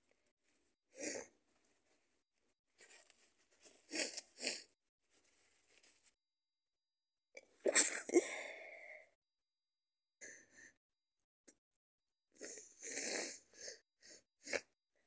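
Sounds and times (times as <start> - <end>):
person sneezing: 7.7 - 8.5.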